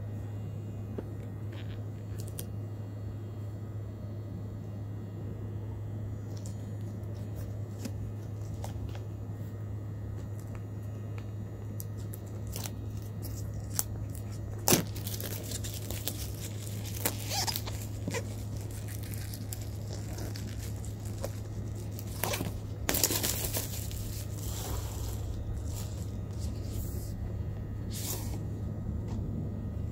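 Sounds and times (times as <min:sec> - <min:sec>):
steady low hum: 0:00.0 - 0:29.9
plastic wrap tearing and crinkling: 0:01.6 - 0:02.5, 0:11.8 - 0:27.2.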